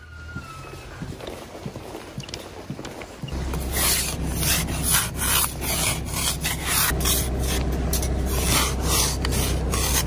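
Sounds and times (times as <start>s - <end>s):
ice scraper scraping windshield: 3.6s - 10.0s.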